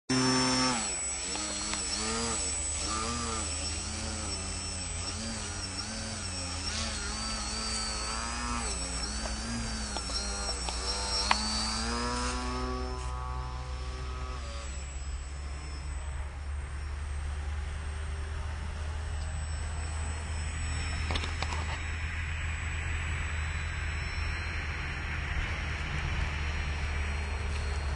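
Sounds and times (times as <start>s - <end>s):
model airplane motor whining: 0.1s - 27.9s.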